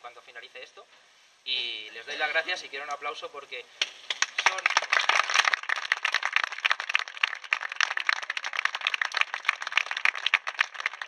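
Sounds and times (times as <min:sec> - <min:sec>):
crowd applauding: 0:04.1 - 0:11.0.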